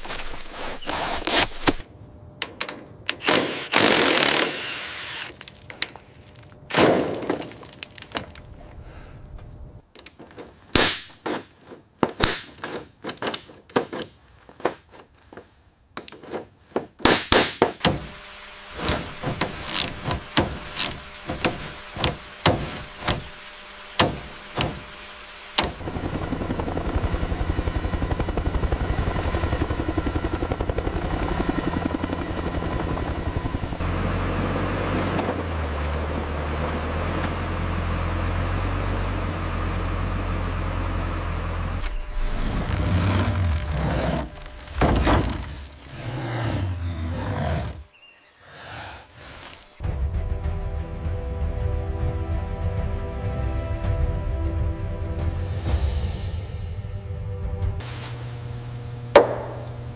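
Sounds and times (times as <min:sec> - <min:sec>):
cordless impact driver: 0:03.1 - 0:05.4, 0:17.8 - 0:25.8
helicopter rotor drone: 0:17.9 - 0:35.8.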